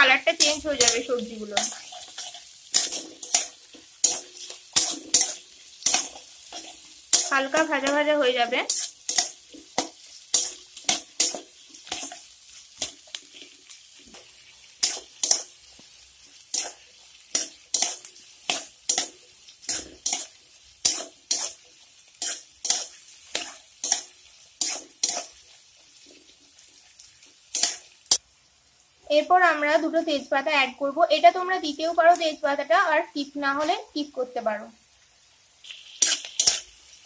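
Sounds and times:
faint sizzle: 0.0s - 37.0s
spatula scraping metal pan: 0.4s - 8.0s, 16.5s - 25.4s.

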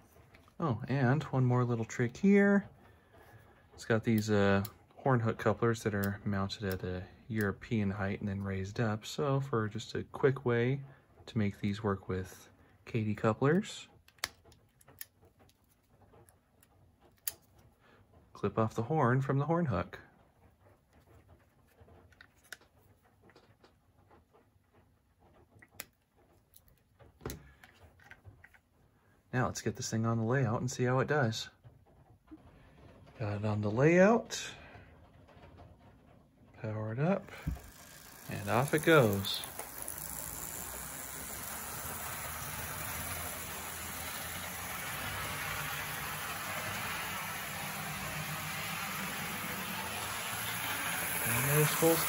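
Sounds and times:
wheels rolling on rails: 0.0s - 26.5s, 29.8s - 52.0s
model locomotive motor whirring: 3.8s - 10.8s, 37.0s - 52.0s.

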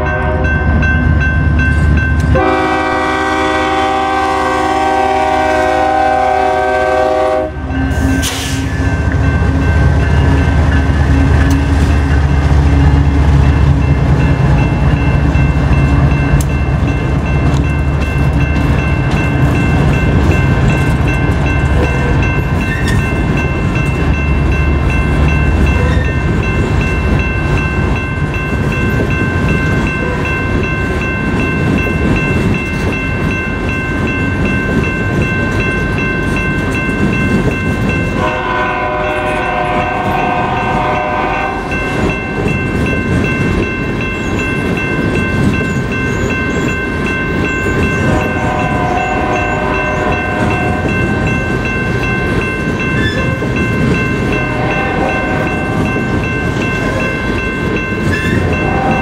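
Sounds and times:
train horn: 0.0s - 0.6s, 2.3s - 8.9s, 38.1s - 42.2s, 48.1s - 51.2s, 54.3s - 56.0s, 58.4s - 59.0s.

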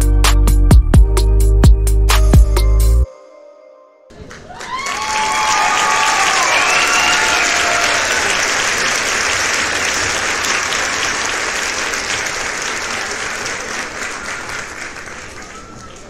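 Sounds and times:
audience applauding: 4.1s - 16.0s.

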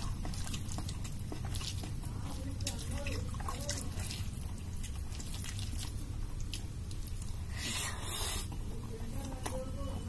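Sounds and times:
wet squishing of food mixed by hand: 0.0s - 10.0s.

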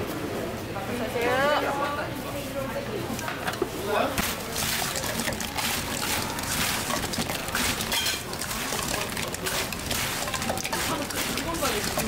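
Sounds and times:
wet sticky stirring in wok: 4.2s - 12.0s.

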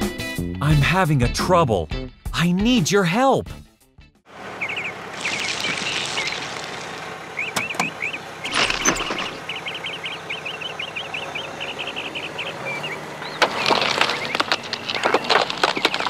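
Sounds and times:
quick high chirps: 4.6s - 10.2s
small stones clattering: 5.2s - 7.0s, 8.5s - 9.4s, 13.4s - 16.0s.

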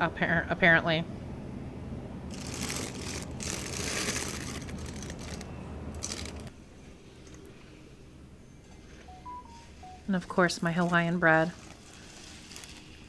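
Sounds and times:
low steady hum: 0.0s - 13.0s
plastic bag crinkling: 2.3s - 6.5s, 11.3s - 13.0s.

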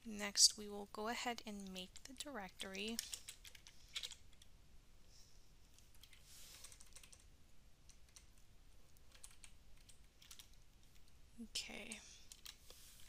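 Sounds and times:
soft keyboard keystrokes: 5.7s - 7.3s, 9.0s - 11.1s.

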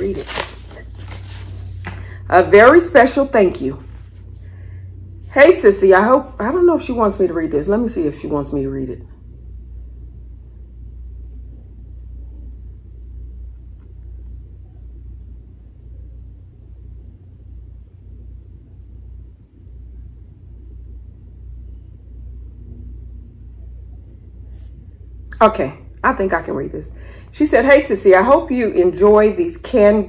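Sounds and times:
low steady background rumble: 0.0s - 30.0s.

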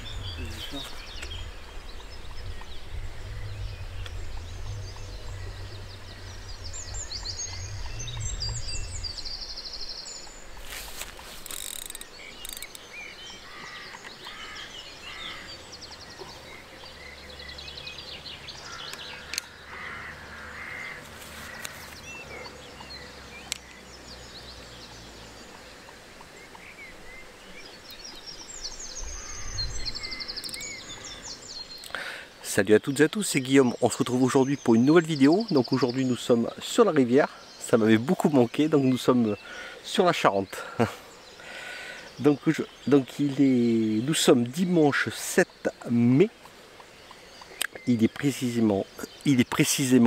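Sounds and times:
low rumble: 0.0s - 10.5s
songbirds chirping: 0.0s - 50.0s
sharp clicks: 11.4s - 12.8s.

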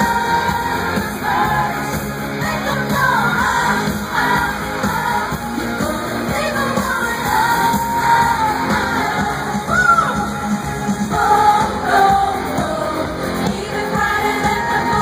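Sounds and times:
crowd yelling and cheering: 0.0s - 15.0s
woman singing over loud band: 0.0s - 15.0s.

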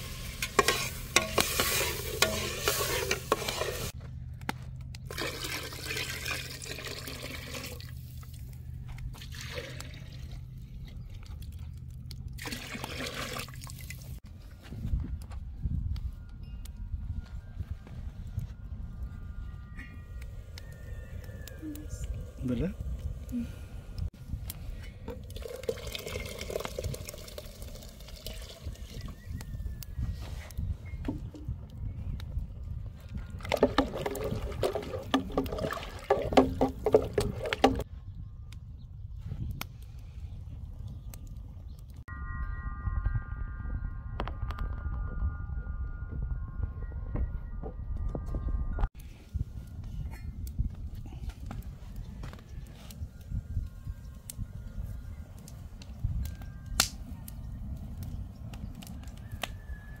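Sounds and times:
utensil scraping metal pot: 0.0s - 4.0s
wood fire crackling: 0.0s - 5.2s, 19.8s - 30.6s, 49.0s - 59.7s
steady low rumble: 14.2s - 25.4s.

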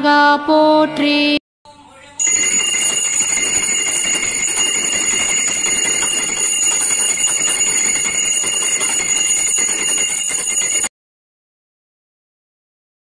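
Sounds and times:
hand bell ringing rapidly: 2.2s - 10.9s.

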